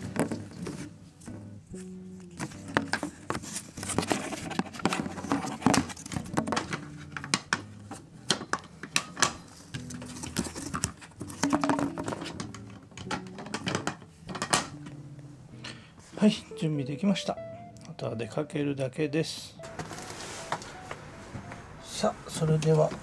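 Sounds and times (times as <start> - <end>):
plastic cat carriers clicking and rattling: 8.3 - 14.7.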